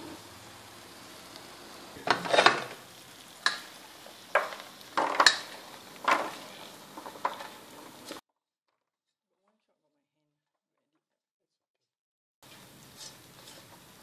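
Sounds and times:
spatula scraping popcorn in saucepan: 0.0s - 8.2s, 12.4s - 14.0s.

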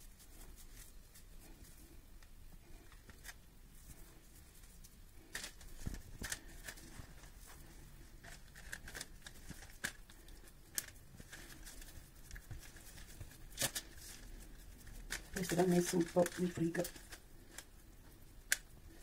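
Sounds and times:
baking paper crinkling: 2.6s - 19.0s.

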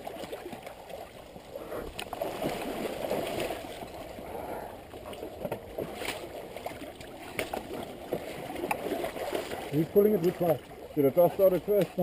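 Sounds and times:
river water sloshing and gurgling: 0.0s - 12.0s.

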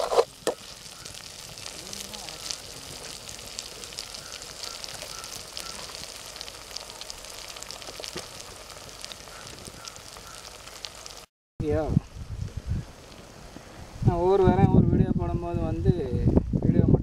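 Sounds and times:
vegetables sizzling in hot oil: 0.0s - 11.3s.

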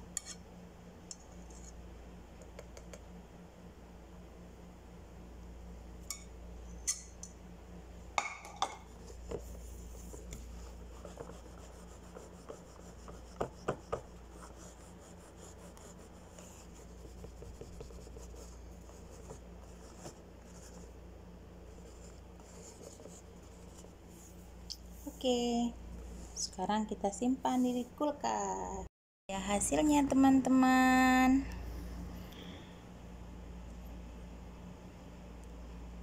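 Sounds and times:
low steady hum: 0.0s - 36.0s
kitchenware clinking: 8.2s - 8.9s.

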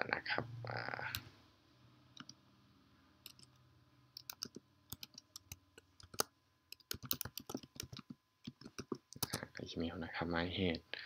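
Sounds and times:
typing on computer keyboard: 3.2s - 3.6s, 4.2s - 9.5s.

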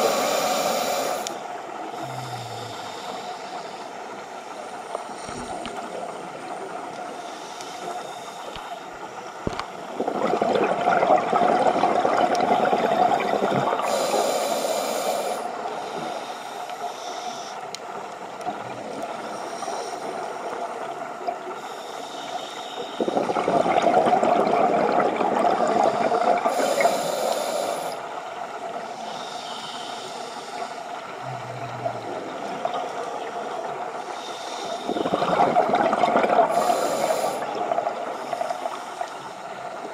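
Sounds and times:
steady underwater hiss: 0.0s - 39.9s
exhaled bubbles rushing: 10.0s - 13.8s, 23.1s - 26.6s, 34.9s - 36.8s.

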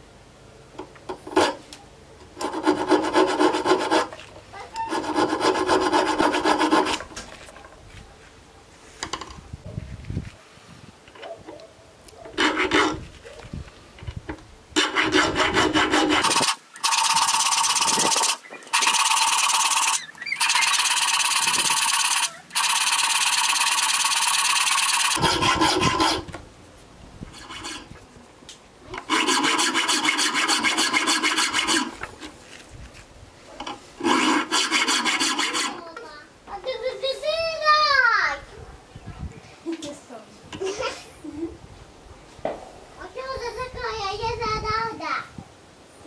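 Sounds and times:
file rasping on steel: 1.3s - 1.6s, 2.4s - 7.1s, 12.3s - 13.0s, 14.8s - 26.3s, 27.3s - 28.0s, 29.0s - 32.1s, 34.0s - 36.0s.

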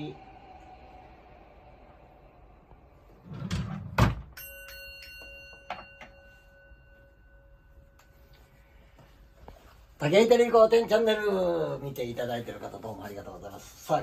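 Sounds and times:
bowl bell ringing: 4.2s - 10.0s.

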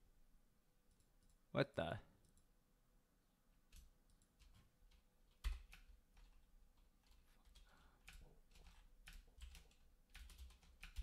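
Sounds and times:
keyboard keystrokes: 3.7s - 11.0s.

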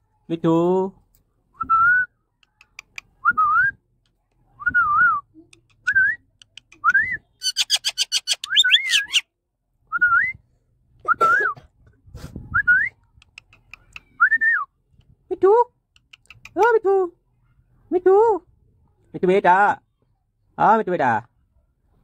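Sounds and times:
parakeet harsh chatter: 7.4s - 9.2s
parakeet whistling: 7.4s - 9.2s.

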